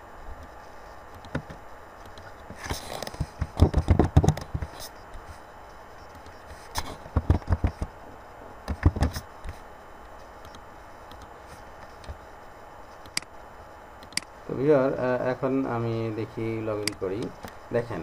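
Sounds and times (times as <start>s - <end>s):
steady low hiss: 0.0s - 18.0s
sharp click: 13.0s - 13.3s, 14.0s - 14.3s, 16.8s - 17.6s.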